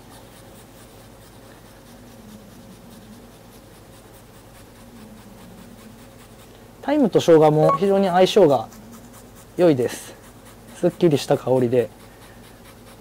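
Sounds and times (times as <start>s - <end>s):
ginger scraping on metal grater: 9.6s - 13.0s.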